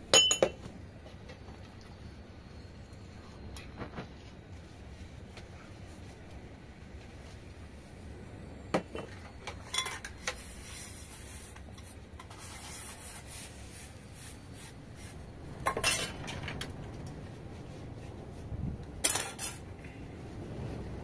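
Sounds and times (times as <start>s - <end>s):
glasses clinking: 0.1s - 0.6s.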